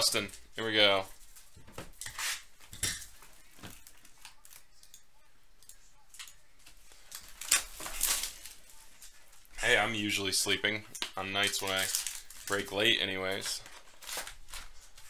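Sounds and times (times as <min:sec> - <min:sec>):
plastic shrink wrap tearing: 0:06.9 - 0:09.2, 0:11.2 - 0:15.0.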